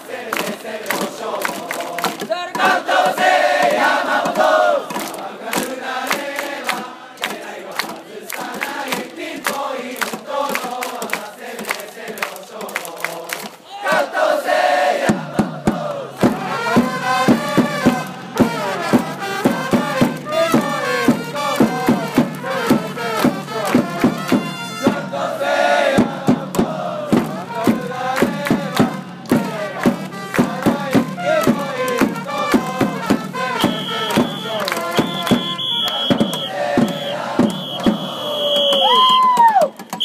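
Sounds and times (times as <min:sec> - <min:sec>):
crowd chanting a cheer song: 0:00.0 - 0:39.6
sharp rhythmic hits: 0:15.0 - 0:39.0.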